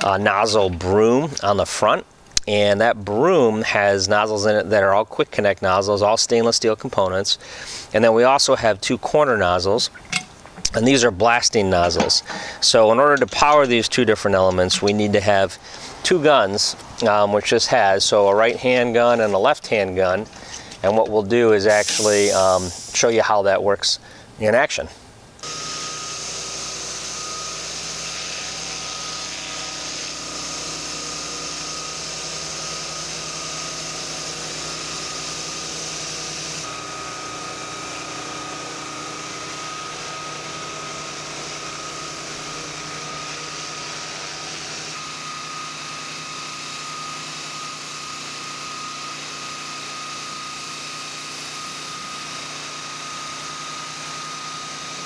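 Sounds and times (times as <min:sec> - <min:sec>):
pressure washer engine hum: 0:10.5 - 0:16.0, 0:21.6 - 0:23.1, 0:25.4 - 0:55.0
water jets hissing: 0:12.0 - 0:12.8, 0:21.6 - 0:23.3, 0:25.5 - 0:36.7.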